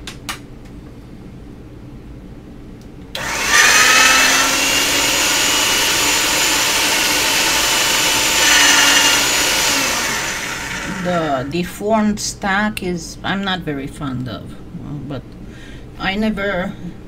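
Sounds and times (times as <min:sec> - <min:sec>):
small electric motor whining: 0:03.2 - 0:11.5.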